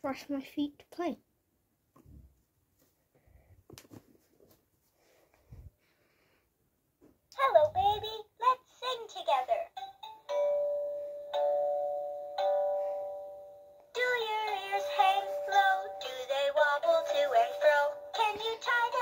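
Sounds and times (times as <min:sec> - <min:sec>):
toy chime notes: 0:09.8 - 0:13.8.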